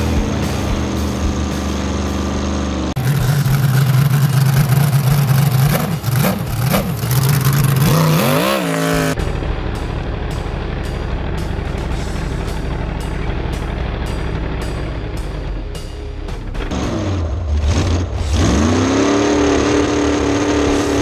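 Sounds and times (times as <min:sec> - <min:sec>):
music: 0:00.0 - 0:03.7, 0:04.5 - 0:21.0
boat engine revving: 0:00.0 - 0:09.2, 0:16.7 - 0:21.0.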